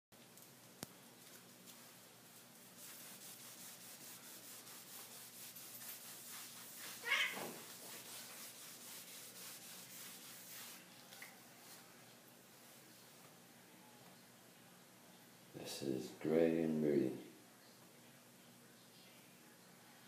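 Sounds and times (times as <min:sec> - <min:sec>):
cats scuffling: 0:05.7 - 0:08.5
cat crying: 0:07.0 - 0:07.5.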